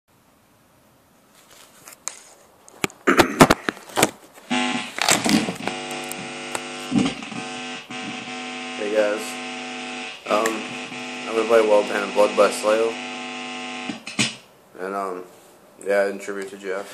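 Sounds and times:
thumps: 0:02.8 - 0:14.4
electrical hum: 0:04.4 - 0:14.2.

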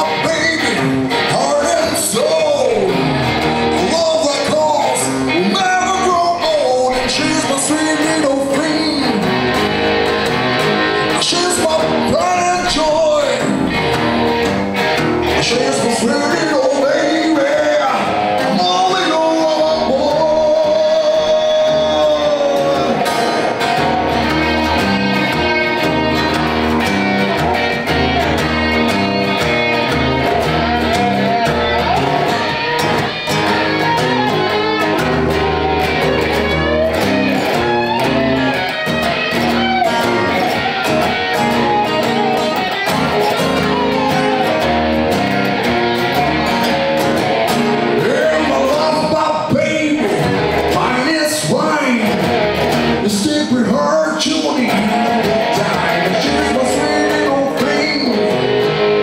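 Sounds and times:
person singing: 0:00.0 - 0:09.6, 0:10.6 - 0:14.1, 0:15.2 - 0:59.0
electric guitar: 0:00.0 - 0:59.0
live rock band playing: 0:00.0 - 0:59.0.

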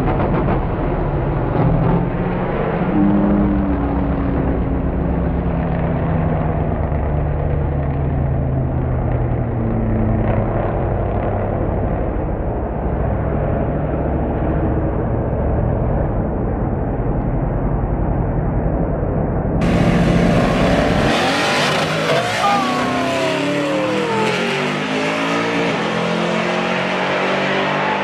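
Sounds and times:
steady rush of noise: 0:11.2 - 0:26.9
car engine running: 0:19.6 - 0:25.2.

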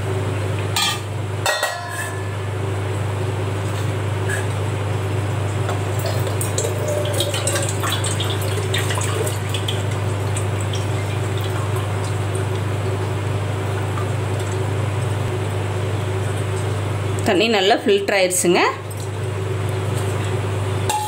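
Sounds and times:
steady low hum: 0:00.0 - 0:21.0
water draining through a strainer: 0:05.9 - 0:15.2.

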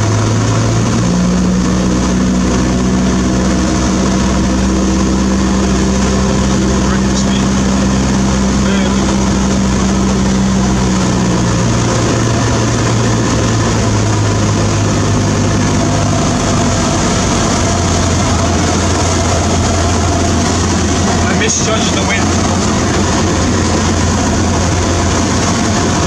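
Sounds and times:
light aircraft engine and propeller drone: 0:00.0 - 0:26.0.

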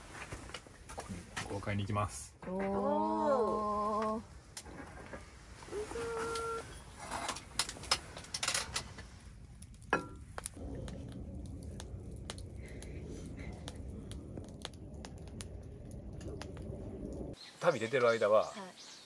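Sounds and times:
low steady rumble: 0:06.6 - 0:17.4.

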